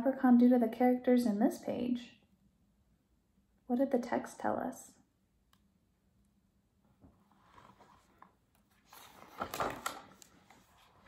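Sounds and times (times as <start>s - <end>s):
book handling sounds: 7.0s - 11.0s
page turning rustle: 7.3s - 11.0s.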